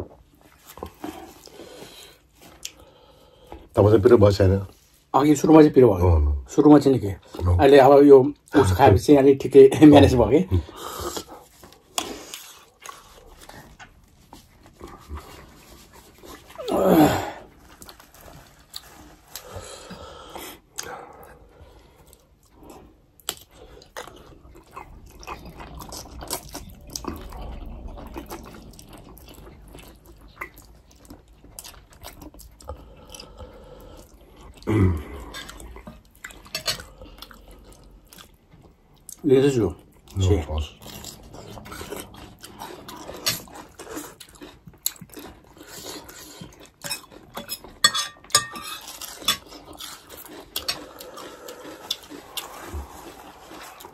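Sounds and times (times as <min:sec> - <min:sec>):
people slurping noodles: 0:14.8 - 0:18.0, 0:32.6 - 0:35.8, 0:49.5 - 0:53.9.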